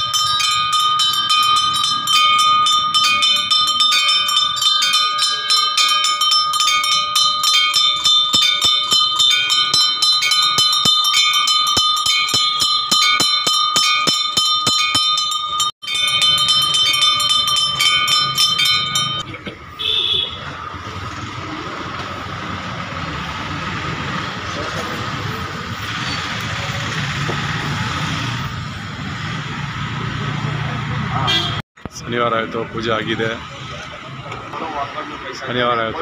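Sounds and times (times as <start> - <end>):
temple bells ringing rapidly: 0.0 - 19.4.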